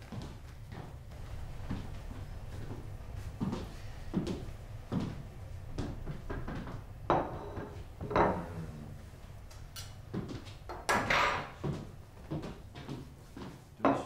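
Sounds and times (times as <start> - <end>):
low background hum: 0.0 - 14.0.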